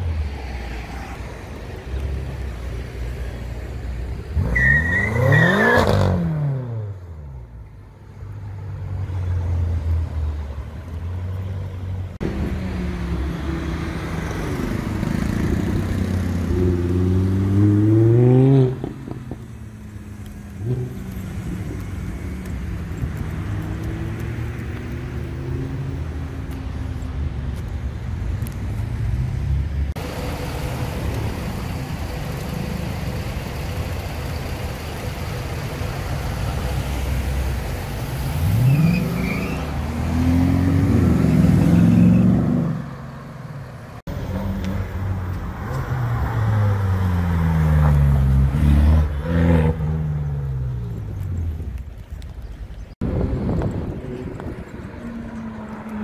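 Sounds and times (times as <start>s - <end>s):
sports car engines accelerating: 12.2s - 27.4s, 28.4s - 43.3s.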